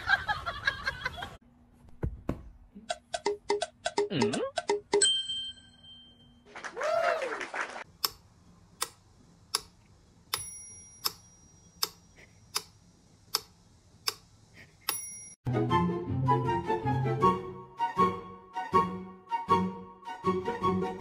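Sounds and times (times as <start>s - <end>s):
short bell-like ring: 5.0s - 6.4s
sharp clicks: 8.0s - 10.4s, 11.8s - 15.0s.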